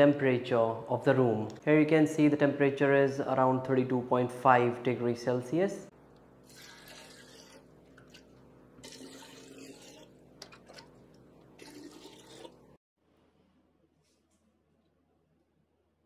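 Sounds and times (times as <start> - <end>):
water pouring and splashing: 6.4 - 12.8.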